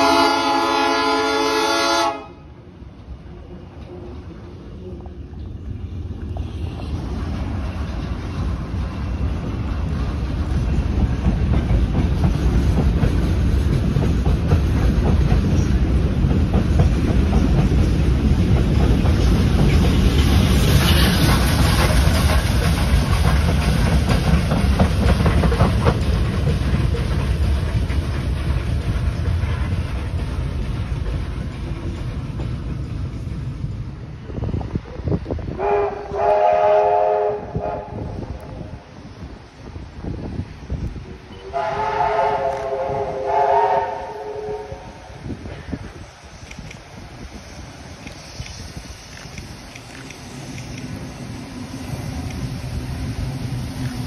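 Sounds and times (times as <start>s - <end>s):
train wheels clattering over rail joints: 6.2s - 33.7s.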